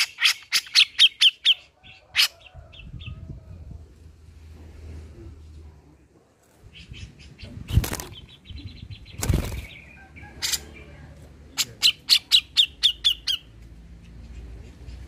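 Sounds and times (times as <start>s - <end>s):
bird thumping in cage: 7.7s - 8.2s
bird chattering trill: 11.6s - 13.5s.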